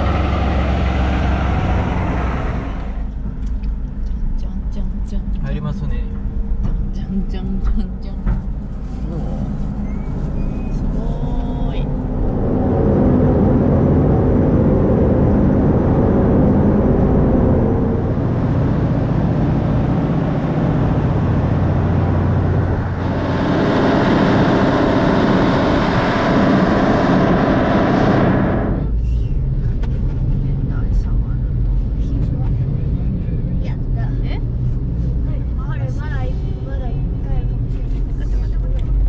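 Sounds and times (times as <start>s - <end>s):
low engine rumble: 0.0s - 39.0s.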